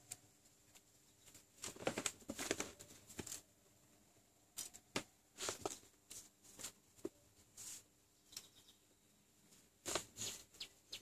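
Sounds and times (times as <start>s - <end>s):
wires rustling and clicking: 0.0s - 3.6s, 4.5s - 8.5s.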